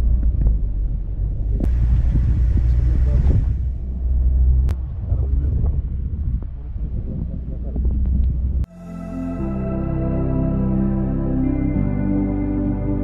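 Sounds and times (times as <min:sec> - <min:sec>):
car engine and road rumble: 0:00.0 - 0:08.8.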